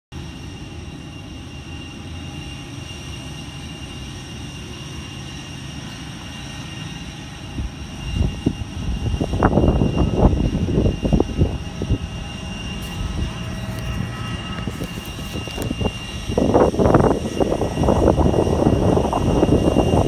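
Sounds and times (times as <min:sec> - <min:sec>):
jet airliner engine rumble and whine: 0:00.1 - 0:20.0
low gusts: 0:05.8 - 0:20.0.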